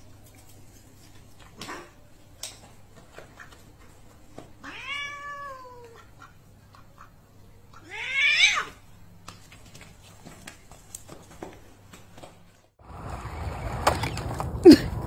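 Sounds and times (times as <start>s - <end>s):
cat meowing: 4.6s - 6.0s, 7.8s - 8.8s
faint taps and scuffs: 9.2s - 12.8s.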